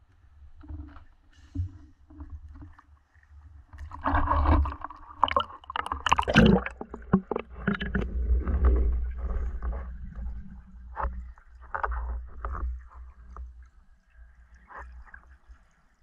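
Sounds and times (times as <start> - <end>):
water sloshing and splashing: 0.5 - 16.0
muffled underwater rumble: 3.6 - 16.0.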